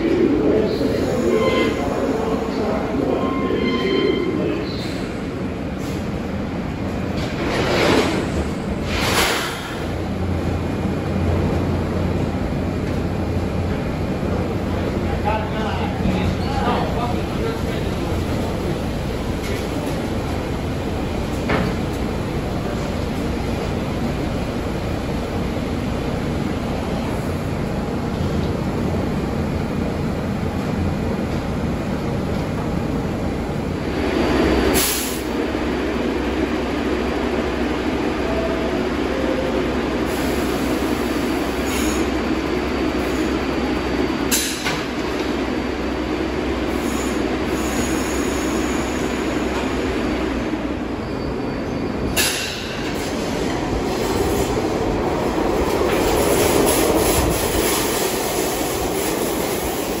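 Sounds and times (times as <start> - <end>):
subway train equipment running: 0.0 - 60.0
train wheels squealing: 51.0 - 52.3.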